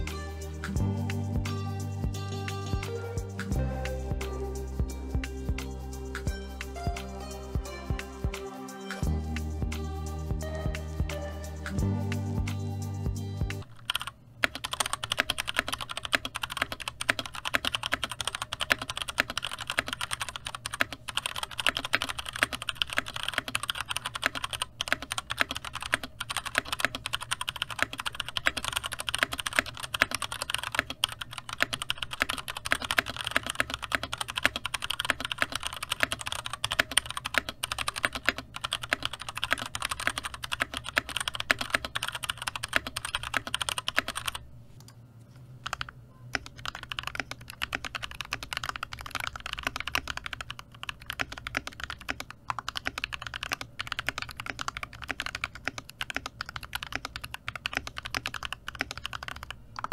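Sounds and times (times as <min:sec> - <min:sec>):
fast mechanical keyboard typing: 0:13.6 - 0:44.4, 0:45.6 - 0:59.9.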